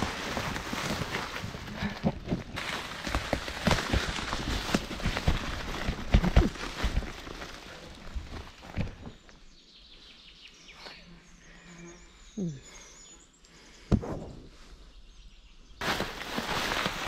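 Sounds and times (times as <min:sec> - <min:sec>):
knocks and rustles: 0:00.2 - 0:09.2.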